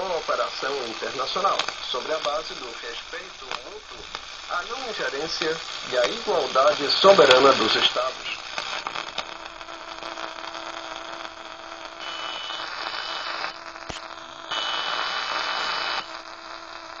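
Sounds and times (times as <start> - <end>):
radio click: 0.0 - 16.4
radio static hiss: 0.0 - 17.0
high steady whistle: 12.0 - 13.9, 14.5 - 16.2.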